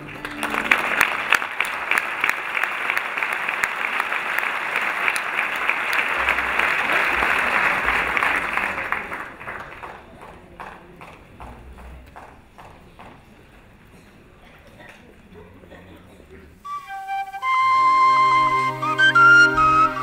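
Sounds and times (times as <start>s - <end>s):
audience applauding: 0.0s - 13.3s.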